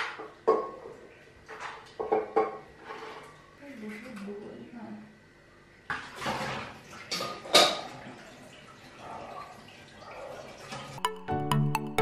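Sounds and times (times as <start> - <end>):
water splashing from a tap: 5.9 - 11.0.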